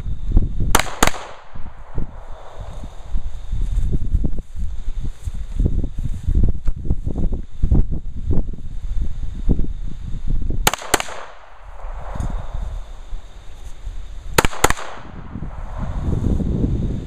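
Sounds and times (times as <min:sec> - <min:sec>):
pistol shots: 0:00.7 - 0:02.0, 0:10.6 - 0:12.3, 0:14.4 - 0:15.2.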